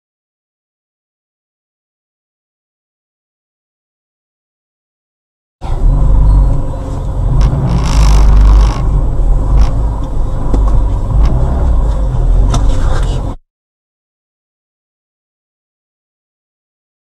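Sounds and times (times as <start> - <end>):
car interior low rumble: 5.6 - 13.4
sharp clicks and knocks: 7.3 - 13.1.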